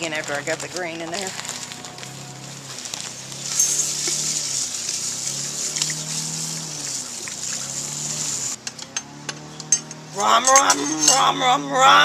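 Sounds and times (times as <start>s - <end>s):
grain pouring into water: 2.8s - 8.6s.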